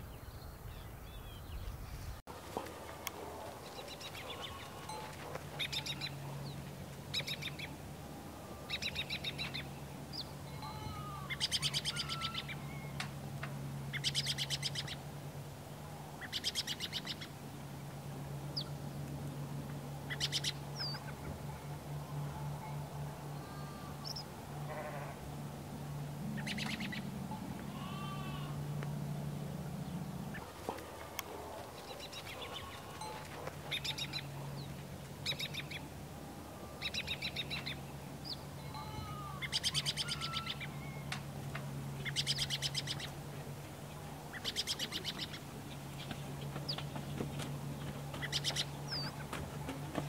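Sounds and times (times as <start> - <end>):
steady low hum: 0.0 - 50.0
birds chirping in trills: 3.1 - 13.2, 13.8 - 15.1, 16.0 - 17.4, 19.9 - 49.8
goat bleating: 10.5 - 11.4, 23.3 - 24.1, 24.7 - 25.2, 27.7 - 28.6, 38.6 - 39.5.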